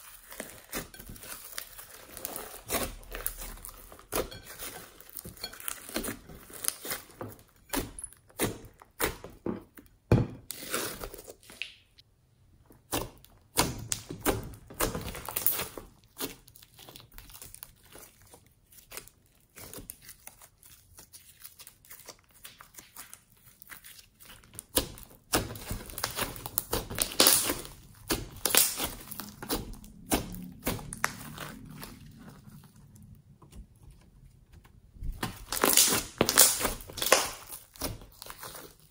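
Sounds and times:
slime squishing and popping: 12.9s - 32.8s, 34.9s - 38.9s.

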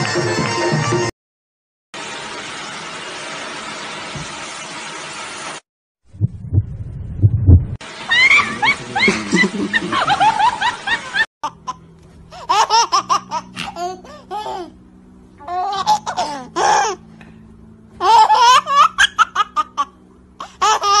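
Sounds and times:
high-pitched laughter: 8.1s - 11.8s, 18.0s - 21.0s.

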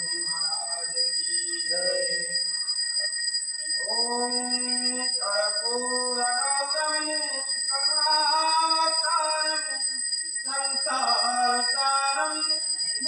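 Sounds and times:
bell ringing: 0.0s - 13.0s
person chanting: 3.8s - 9.9s, 10.5s - 13.0s.

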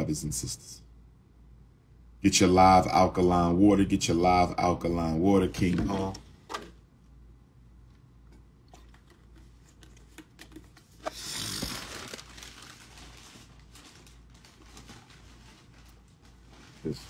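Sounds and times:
loud packaging crinkling: 8.8s - 17.0s
packaging rustling: 8.8s - 17.0s.

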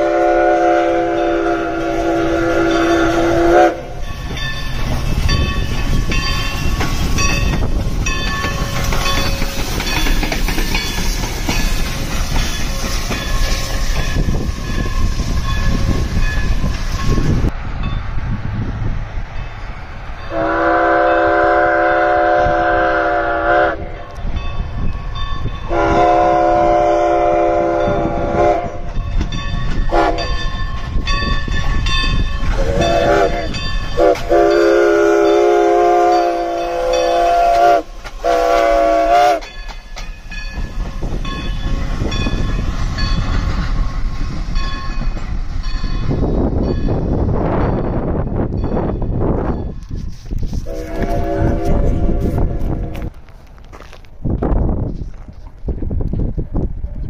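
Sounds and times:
steam locomotive chime whistle: 0.0s - 17.5s, 20.2s - 43.2s, 49.6s - 53.0s
rush of steam and running gear: 1.4s - 17.6s
bell ringing: 4.0s - 10.2s.

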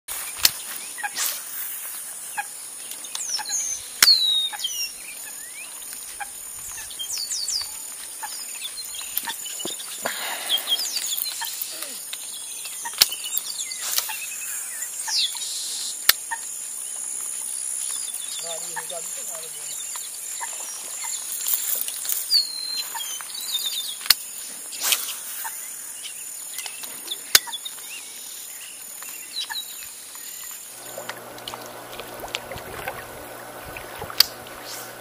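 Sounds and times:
birds chirping: 0.2s - 35.0s
high insect drone: 4.6s - 22.3s.

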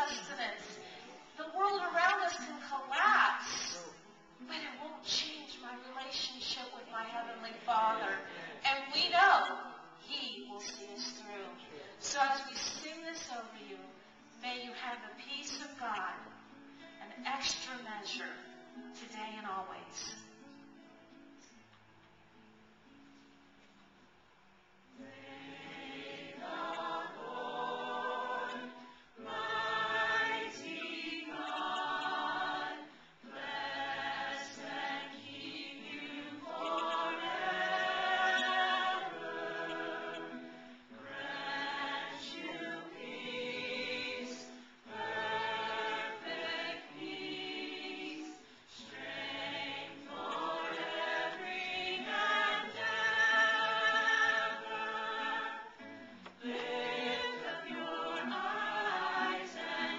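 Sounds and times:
group singing a cappella: 7.6s - 8.7s, 25.0s - 59.9s.

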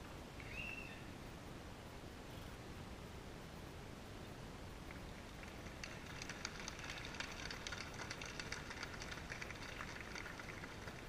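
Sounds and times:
crowd applause: 5.3s - 11.0s.

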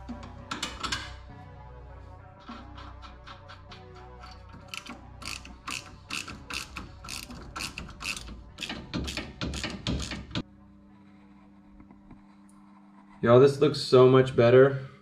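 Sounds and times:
socket ratchet clicking: 4.2s - 10.4s.

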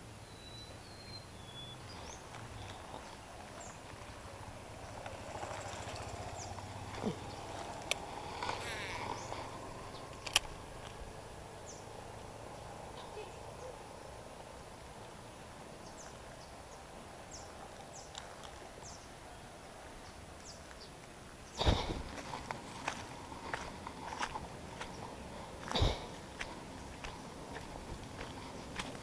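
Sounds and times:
fishing line whirring off spool: 7.8s - 9.4s.

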